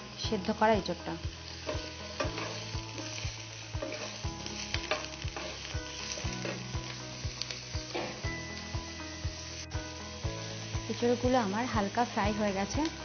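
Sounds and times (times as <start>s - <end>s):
food sizzling in frying pan: 0.0s - 13.0s
wooden spatula scraping pan: 3.8s - 4.2s.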